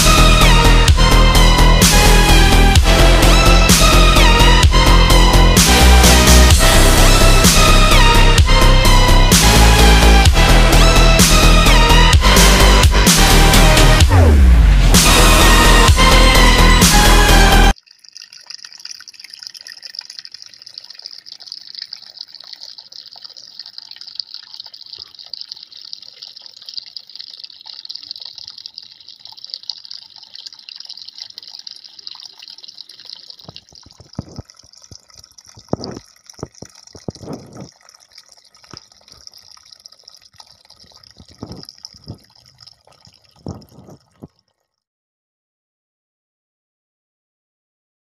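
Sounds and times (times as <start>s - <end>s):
water drops and splashes: 0.0s - 44.8s
fountain water trickling over stones: 17.7s - 44.8s.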